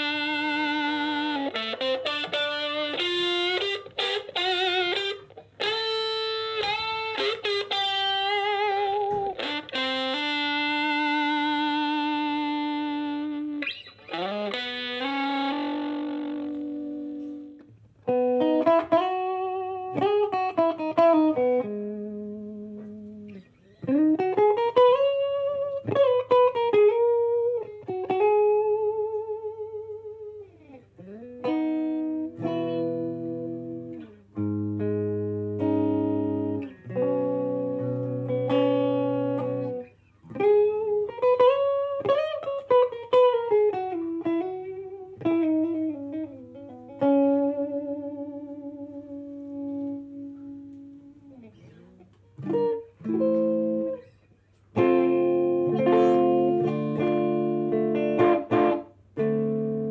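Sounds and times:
guitar melody with bending notes: 0.0 - 59.9
held guitar chords: 0.0 - 59.9.

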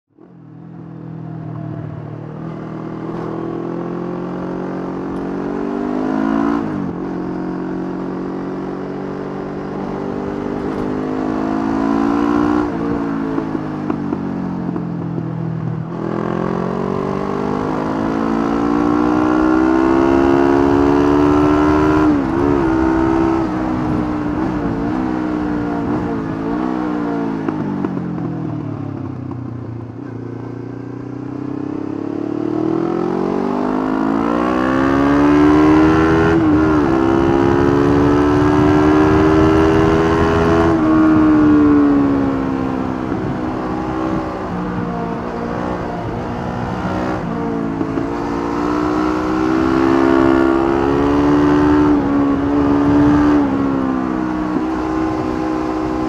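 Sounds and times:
motorcycle engine shifting gears: 0.2 - 56.0.

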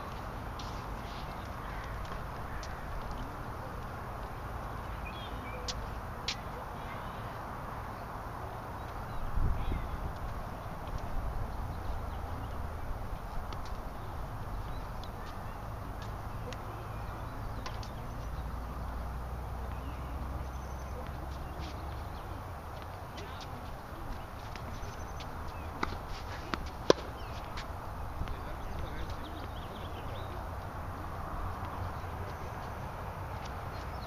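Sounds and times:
tennis ball pops: 25.8 - 27.2.

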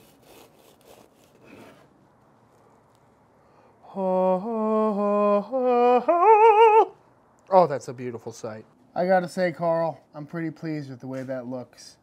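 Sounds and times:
knife rasping through pastry: 0.0 - 2.0.

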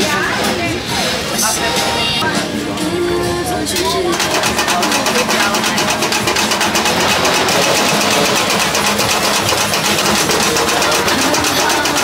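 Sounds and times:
small engine running with rattle: 4.0 - 12.0.

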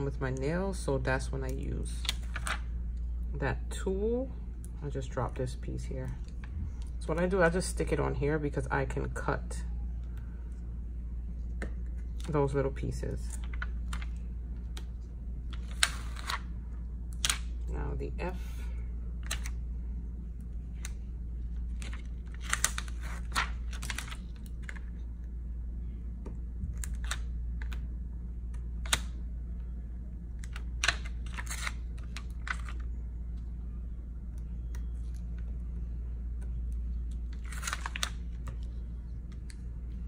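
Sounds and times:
low hum: 0.0 - 40.0
vinyl peeling clicks and crackles: 1.5 - 3.0, 13.3 - 16.5, 17.1 - 17.6, 19.2 - 19.6, 20.4 - 25.3, 26.7 - 29.7, 30.3 - 33.5, 34.2 - 40.0.

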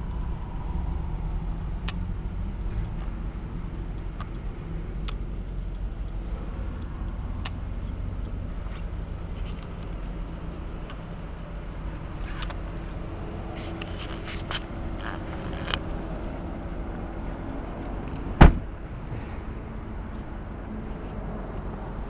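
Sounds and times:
car engine idling: 0.0 - 22.0
car door shutting: 18.4 - 18.7.

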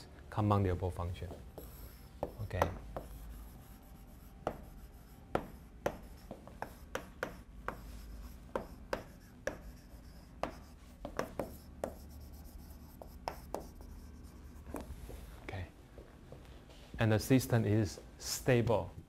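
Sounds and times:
chalk tapping and scratching: 1.1 - 15.2.

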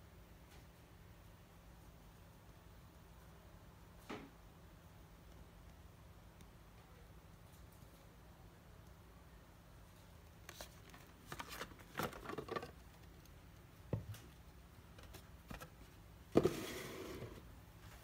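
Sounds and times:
cardboard boxes rustling: 10.5 - 12.8.

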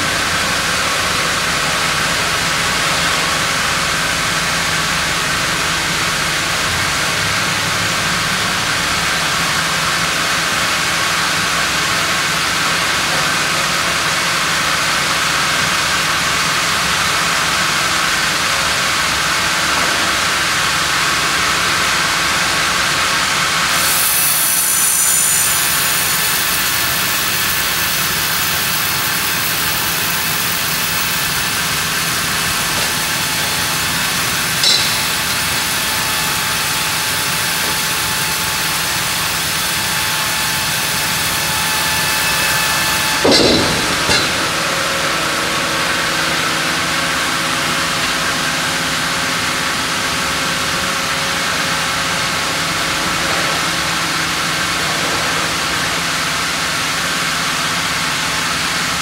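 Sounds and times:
band saw and log carriage running: 0.0 - 59.0
loud hiss: 23.7 - 45.0.

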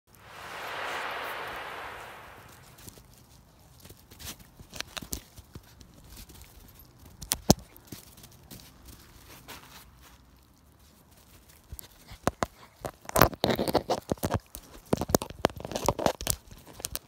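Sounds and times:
hiss: 0.1 - 2.8.

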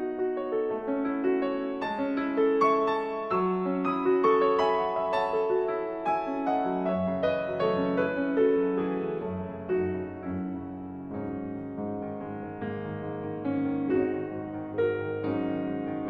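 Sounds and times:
slow gentle piano music: 0.0 - 16.0.

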